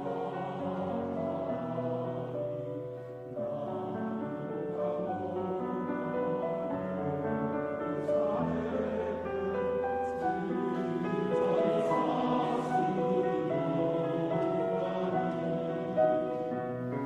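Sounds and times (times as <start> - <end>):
male choir singing in harmony: 0.0 - 17.0
piano accompaniment: 0.0 - 17.0.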